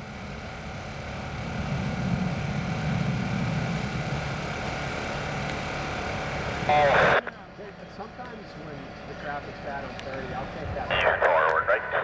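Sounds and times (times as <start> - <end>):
distant jet engine rumble: 0.0 - 12.0.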